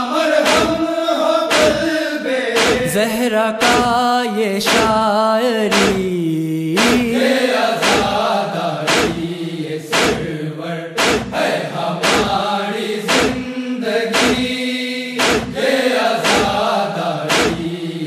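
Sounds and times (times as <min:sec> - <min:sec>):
men's chorus chanting: 0:00.0 - 0:06.2, 0:06.8 - 0:18.0
hands striking chests: 0:00.4 - 0:00.8, 0:01.5 - 0:01.9, 0:02.6 - 0:03.0, 0:04.7 - 0:05.0, 0:05.7 - 0:06.0, 0:07.8 - 0:08.2, 0:08.9 - 0:09.2, 0:09.9 - 0:10.3, 0:11.0 - 0:11.4, 0:12.0 - 0:12.4, 0:13.1 - 0:13.4, 0:14.1 - 0:14.5, 0:15.2 - 0:15.6, 0:16.2 - 0:16.6, 0:17.3 - 0:17.6.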